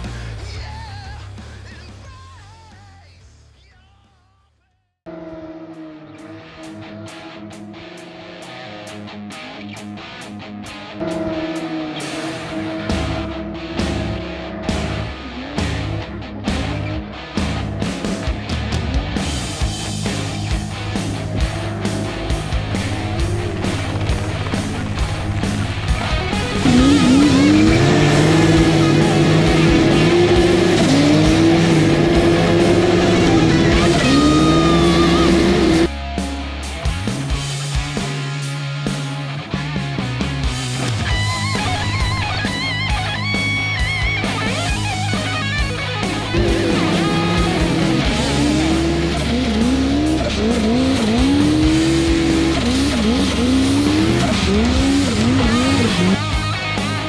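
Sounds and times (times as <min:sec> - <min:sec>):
rock music with guitar: 0:00.0 - 0:03.0, 0:05.1 - 0:57.0
snowmobile engine revving: 0:20.1 - 0:35.9, 0:44.3 - 0:57.0.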